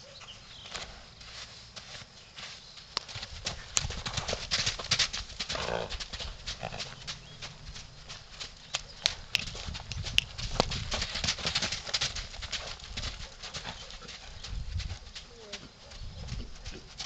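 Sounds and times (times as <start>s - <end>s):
horse hoofbeats on sand: 0.2s - 17.0s.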